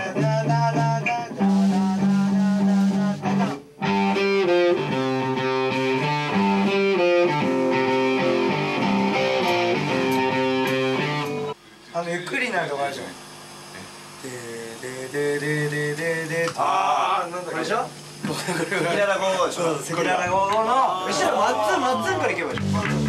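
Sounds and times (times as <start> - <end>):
electric guitar chords: 0.0 - 11.6, 22.5 - 23.0.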